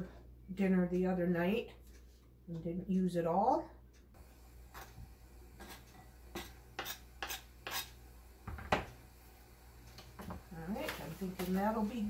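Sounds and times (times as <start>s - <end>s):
knife scraping cutting board: 5.6s - 8.0s.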